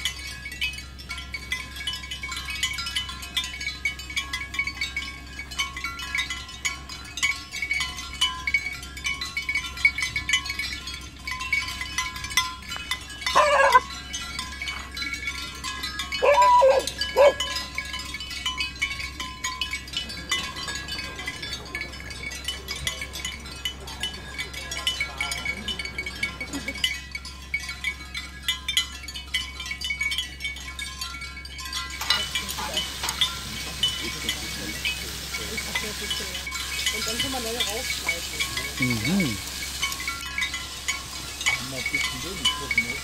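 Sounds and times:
dog barking: 0:13.4 - 0:13.8, 0:16.2 - 0:17.6.

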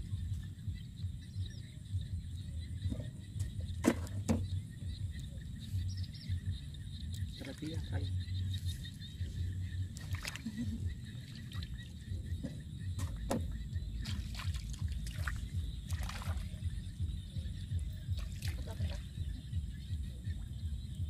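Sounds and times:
steady low rumble: 0:00.0 - 0:21.0
splashing in muddy puddle: 0:09.9 - 0:12.0, 0:14.0 - 0:16.8, 0:18.1 - 0:19.4.

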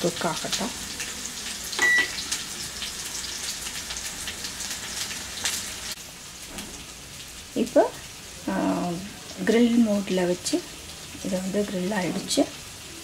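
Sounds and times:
chicken sizzling in hot oil: 0:00.0 - 0:13.0
microwave short beep: 0:01.8 - 0:02.2.

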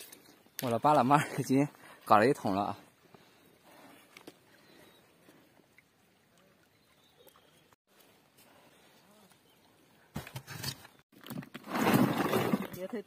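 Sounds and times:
faint outdoor background: 0:00.0 - 0:13.0
bucket of snails rustling: 0:11.2 - 0:12.9.

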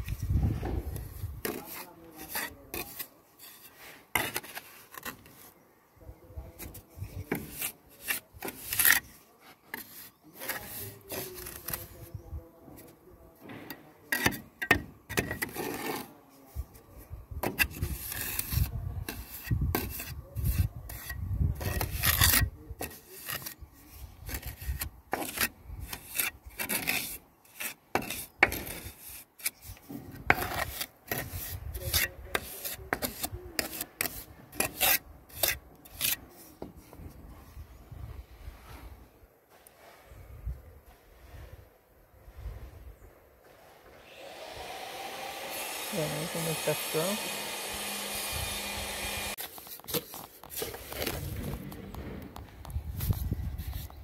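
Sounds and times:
trowel scraping mortar on tiles: 0:00.0 - 0:05.6, 0:06.5 - 0:12.1, 0:14.1 - 0:36.8, 0:48.9 - 0:51.7.

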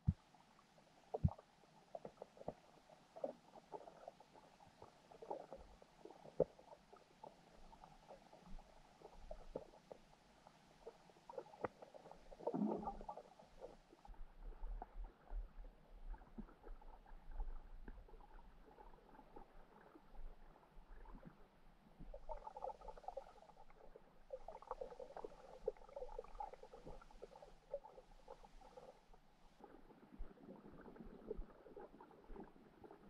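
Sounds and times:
crackle of small clicks: 0:00.0 - 0:21.4
muffled underwater rumble: 0:01.2 - 0:33.0.

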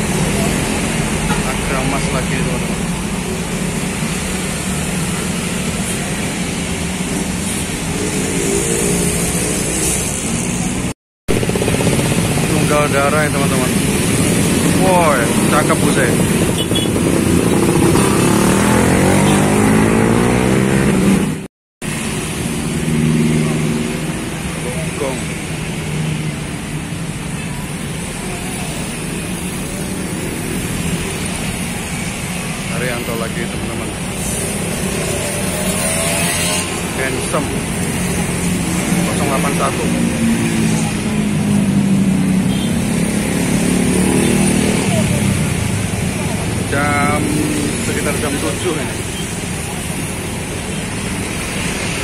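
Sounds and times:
motorcycles and cars passing: 0:00.0 - 0:52.0
bus diesel engine: 0:20.4 - 0:35.6, 0:44.3 - 0:52.0.

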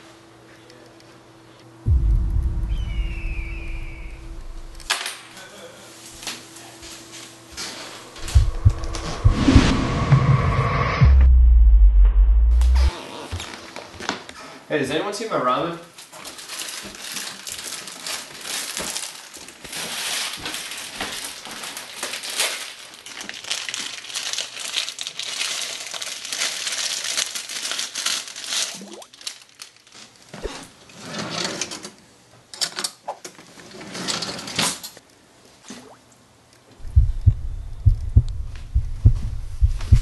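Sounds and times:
plastic wrapper crinkling: 0:16.0 - 0:30.3.

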